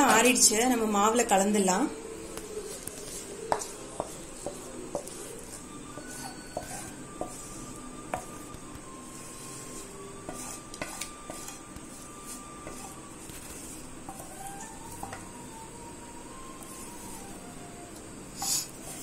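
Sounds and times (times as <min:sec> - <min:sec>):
steel spoon scraping a pan: 0:02.6 - 0:15.4, 0:18.3 - 0:19.0.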